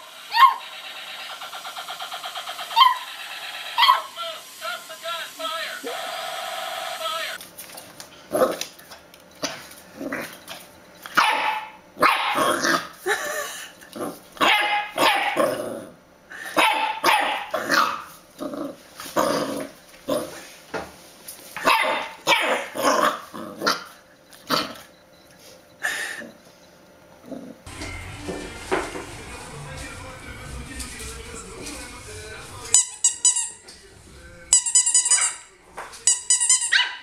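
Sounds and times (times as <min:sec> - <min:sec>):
puppy barking: 0:00.3 - 0:00.7, 0:02.7 - 0:04.2, 0:11.1 - 0:12.9, 0:14.4 - 0:15.6, 0:16.5 - 0:18.1, 0:21.6 - 0:23.9, 0:35.0 - 0:35.4, 0:36.6 - 0:37.0.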